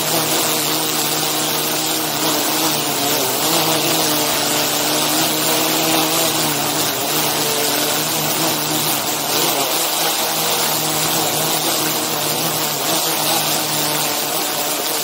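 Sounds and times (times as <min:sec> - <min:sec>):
drone propellers buzzing: 0:00.0 - 0:15.0.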